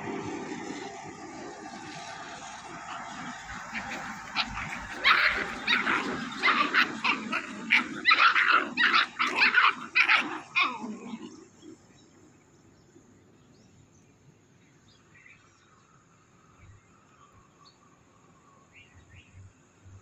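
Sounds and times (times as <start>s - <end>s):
puppies yapping and barking: 1.4s - 11.8s.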